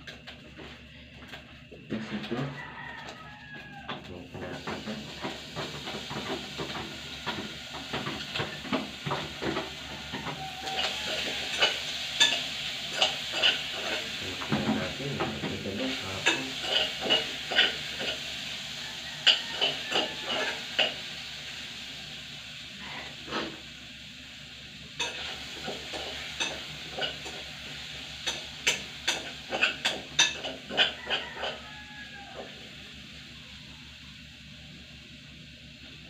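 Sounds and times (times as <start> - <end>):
frying sizzle: 1.4 - 36.0.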